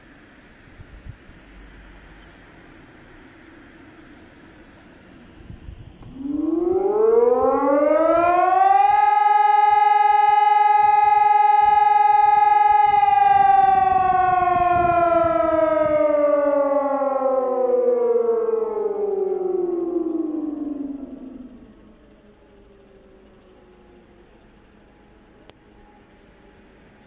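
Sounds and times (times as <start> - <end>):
electronic siren tone: 6.0 - 26.2.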